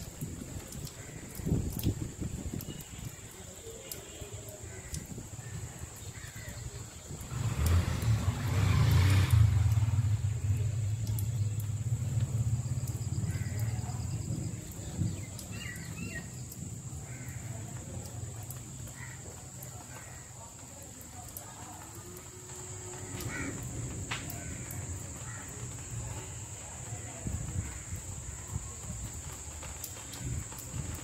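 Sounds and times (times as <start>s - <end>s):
passing vehicle rumble: 6.8s - 15.4s, 22.2s - 30.9s.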